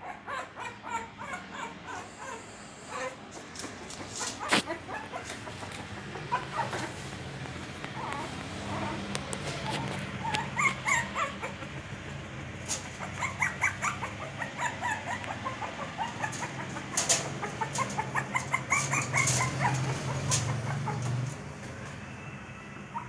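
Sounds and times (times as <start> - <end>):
puppy whining and yelping: 0.0 - 7.0, 8.0 - 11.9, 12.7 - 21.4
scratching and knocking at door: 15.8 - 21.7.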